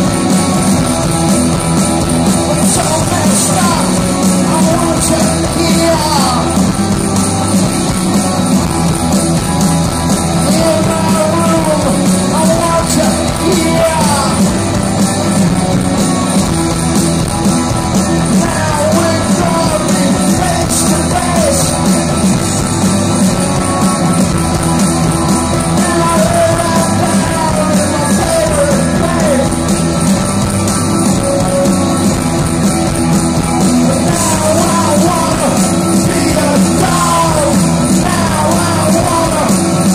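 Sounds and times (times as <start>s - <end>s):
punk rock band playing: 0.0s - 39.9s
man singing and yelling: 2.4s - 6.8s, 10.2s - 14.7s, 17.8s - 22.2s, 25.4s - 29.7s, 33.7s - 39.9s.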